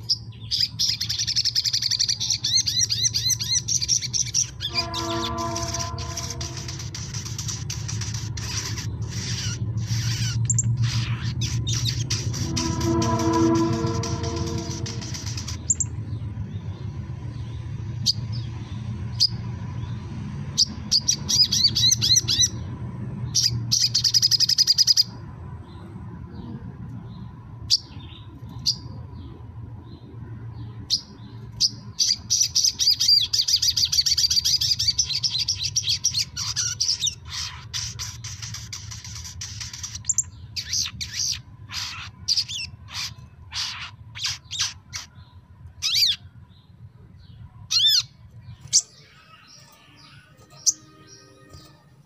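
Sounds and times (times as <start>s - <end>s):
songbird chirping and trilling: 0.0s - 52.0s
faint steady high tone: 48.7s - 52.0s.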